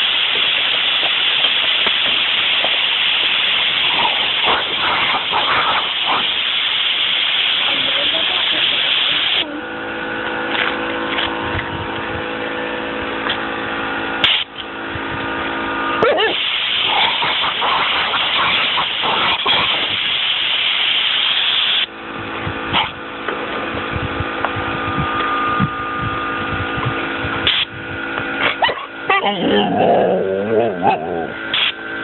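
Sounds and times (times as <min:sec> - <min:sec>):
compressed air hissing from nozzle: 0:00.0 - 0:09.4, 0:14.2 - 0:14.5, 0:16.3 - 0:21.9, 0:27.4 - 0:27.8, 0:31.5 - 0:31.8
steady machine hum: 0:00.0 - 0:32.0.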